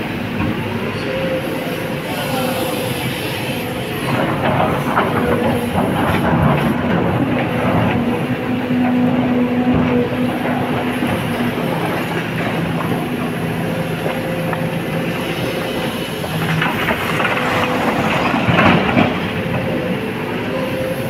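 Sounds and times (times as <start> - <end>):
excavator engine and hydraulics: 0.0 - 21.0.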